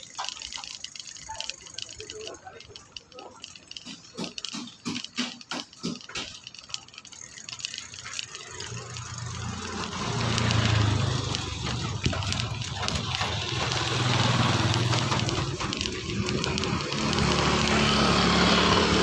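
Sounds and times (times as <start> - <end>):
quick regular ticking: 0.0 - 19.0
motorcycle engine humming: 7.6 - 19.0.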